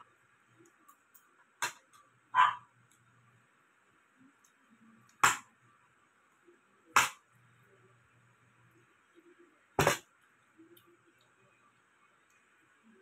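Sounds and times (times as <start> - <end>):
sharp loud snaps: 7.0 - 7.2.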